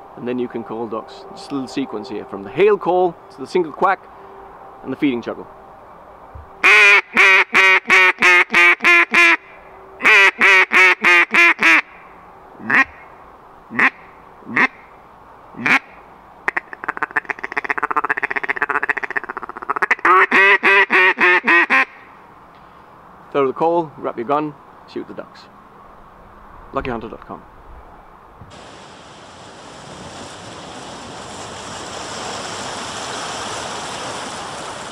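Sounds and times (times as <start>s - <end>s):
duck call feeding chuckle: 6.6s - 9.4s, 10.0s - 11.8s, 12.6s - 13.0s, 13.7s - 14.7s, 15.6s - 15.8s, 16.8s - 22.0s
duck call quacks: 6.6s - 9.4s, 10.0s - 11.9s, 12.6s - 13.0s, 13.7s - 14.9s, 15.6s - 15.9s, 16.5s - 22.1s.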